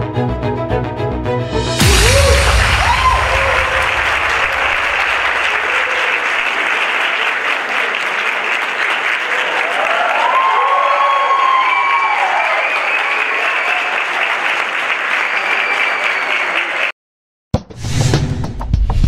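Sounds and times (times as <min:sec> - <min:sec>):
people whooping: 0:01.8 - 0:07.4, 0:09.3 - 0:14.4, 0:15.2 - 0:16.9
audience applauding: 0:01.8 - 0:17.0.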